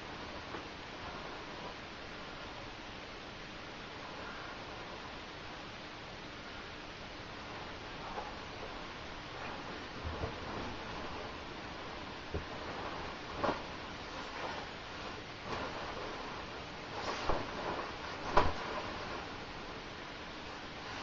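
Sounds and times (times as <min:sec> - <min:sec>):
faint steady hiss: 0:00.0 - 0:21.0
sleeping bag rustling: 0:08.0 - 0:19.5.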